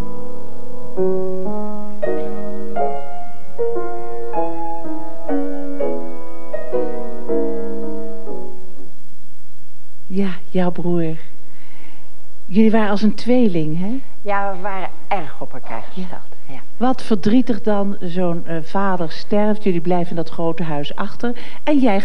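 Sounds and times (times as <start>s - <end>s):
piano music: 0.0s - 9.0s.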